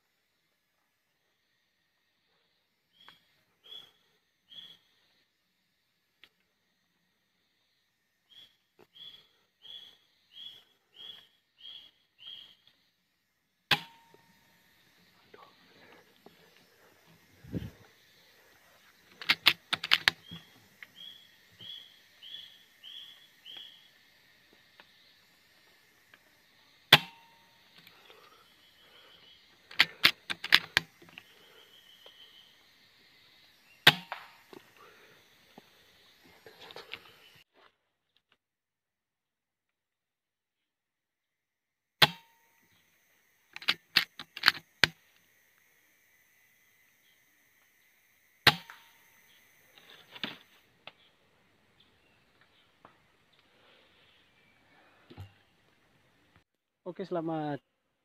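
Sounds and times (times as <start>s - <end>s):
faint bird trills: 2.9s - 5.1s, 8.2s - 12.6s, 20.1s - 24.0s
sharp clicks: 19.0s - 21.0s, 29.6s - 31.4s, 43.5s - 45.2s.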